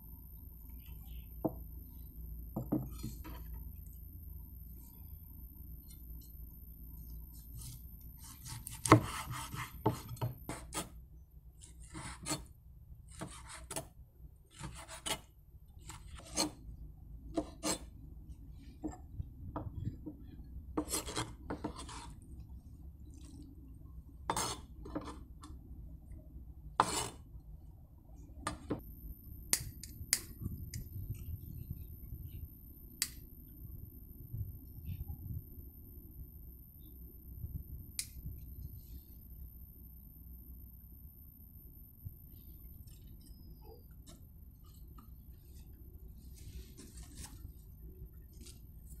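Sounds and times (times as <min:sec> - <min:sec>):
knife scraping strokes: 0:17.4 - 0:17.9, 0:20.8 - 0:22.2, 0:24.3 - 0:24.7, 0:26.8 - 0:27.2, 0:44.6 - 0:47.6.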